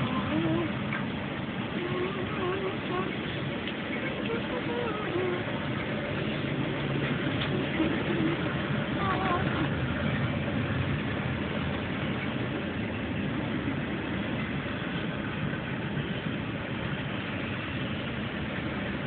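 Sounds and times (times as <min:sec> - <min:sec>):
freight train rumbling on rails: 0:00.0 - 0:19.0.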